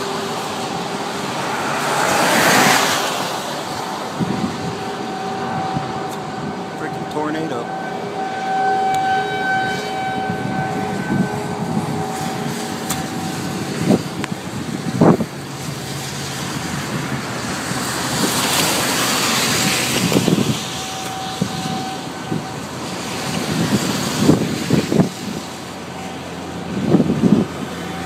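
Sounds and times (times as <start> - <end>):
steady tone: 0.0 - 17.6
tyres on wet pavement: 0.0 - 28.0.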